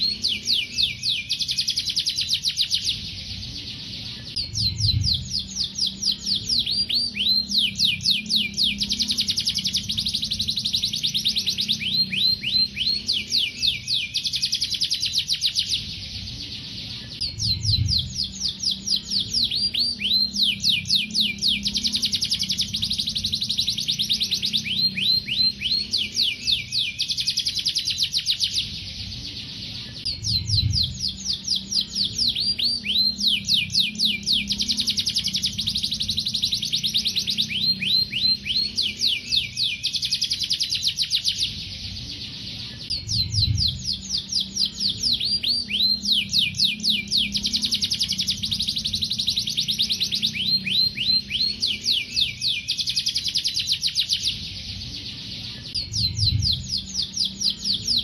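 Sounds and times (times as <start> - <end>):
canary singing fast trills: 0.0 - 58.0
faint low hum: 0.0 - 58.0.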